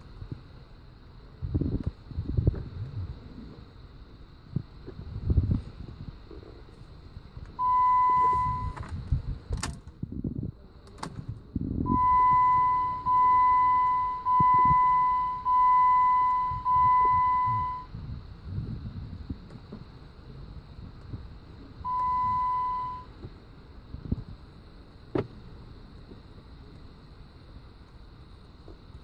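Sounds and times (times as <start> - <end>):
electronic warning chime beeps: 7.6 - 8.8, 11.9 - 17.9, 21.8 - 23.1.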